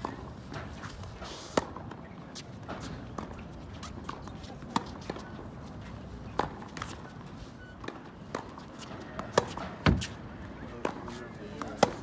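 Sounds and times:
tennis balls bouncing on court: 0:02.8 - 0:05.4, 0:06.2 - 0:12.0
rackets striking tennis balls: 0:06.2 - 0:07.2, 0:07.8 - 0:12.0.

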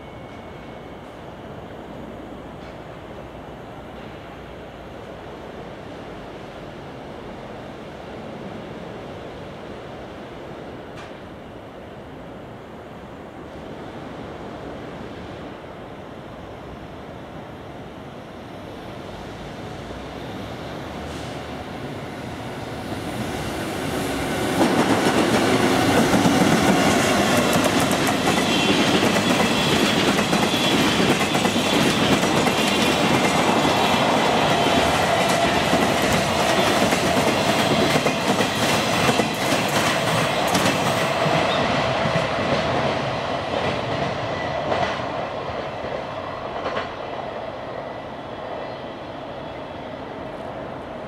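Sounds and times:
freight train rumbling past: 0:00.0 - 0:51.0.

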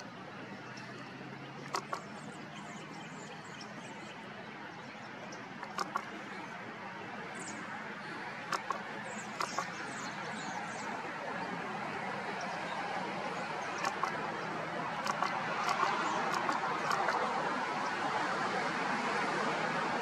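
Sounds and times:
birds chirping: 0:00.0 - 0:18.9
outdoor background noise: 0:00.0 - 0:20.0
sharp clicks: 0:01.6 - 0:02.1, 0:05.6 - 0:06.1, 0:08.5 - 0:09.8, 0:15.0 - 0:17.2.

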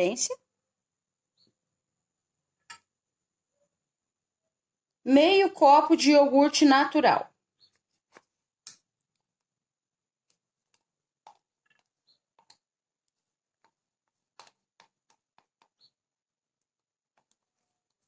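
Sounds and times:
plastic spoon scraping cup: 0:10.2 - 0:16.0.

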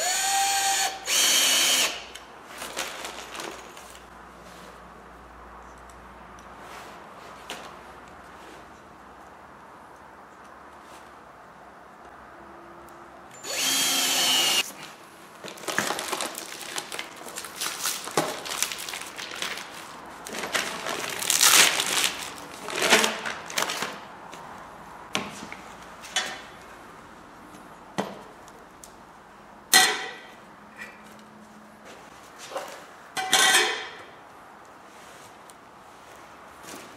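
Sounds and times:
cordless drill driving screw: 0:00.0 - 0:02.2, 0:13.4 - 0:14.6
rustling and scraping of pipe: 0:06.5 - 0:09.0, 0:30.8 - 0:33.9, 0:34.7 - 0:36.9.

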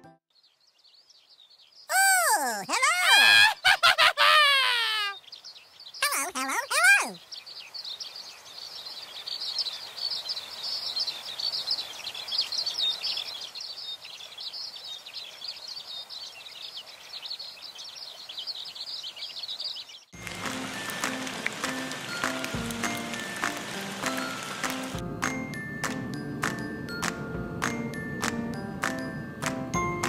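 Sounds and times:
music: 0:00.0 - 0:00.2, 0:20.2 - 0:30.0
birds chirping: 0:00.3 - 0:25.6
faint outdoor background noise: 0:00.3 - 0:30.0.

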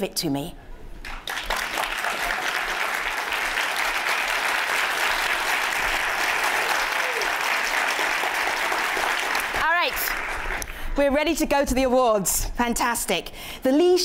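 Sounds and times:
audience applauding: 0:01.0 - 0:10.7.

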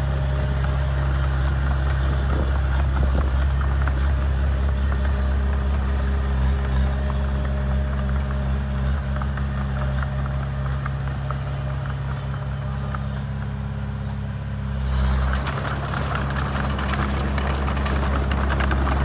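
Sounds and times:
bulldozer diesel engine running: 0:00.0 - 0:19.0
clattering clicks and rattles: 0:15.2 - 0:19.0.

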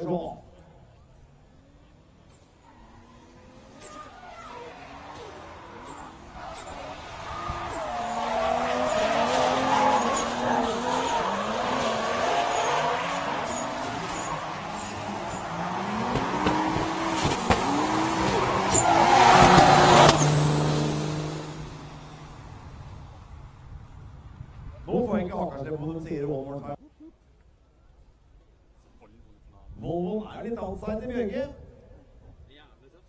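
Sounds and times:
car engines revving: 0:00.5 - 0:26.0
tyres squealing: 0:02.8 - 0:22.1.

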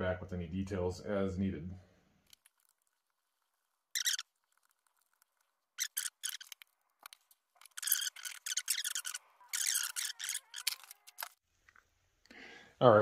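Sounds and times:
screwdriver scraping and clicking: 0:05.8 - 0:11.4.

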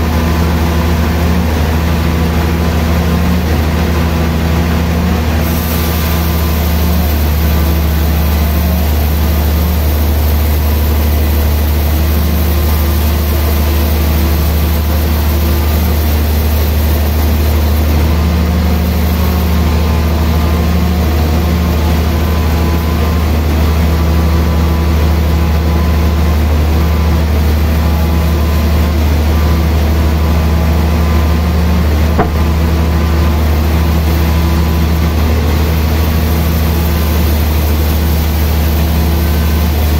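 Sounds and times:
band sawmill running: 0:00.0 - 0:39.9.

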